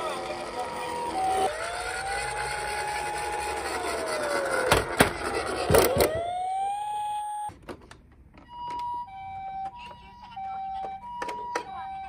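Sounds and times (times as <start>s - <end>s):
toy electronic siren wailing: 0.0s - 7.5s, 8.5s - 12.0s
two-tone toy ambulance siren: 0.0s - 7.6s, 8.4s - 12.0s.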